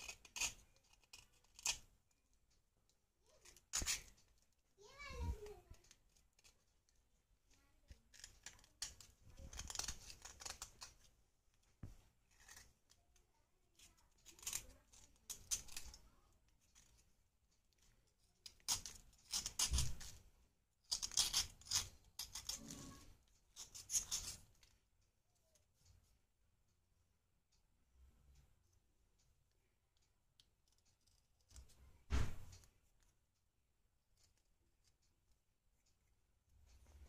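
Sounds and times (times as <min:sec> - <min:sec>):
blade scraping clay: 0:00.0 - 0:01.9, 0:12.2 - 0:13.0, 0:13.8 - 0:16.0, 0:18.5 - 0:20.2, 0:20.9 - 0:24.7.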